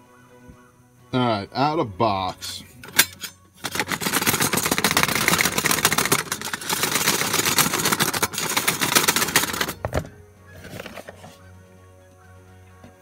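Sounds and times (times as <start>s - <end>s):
crinkling and rustling from handling: 2.9s - 11.4s.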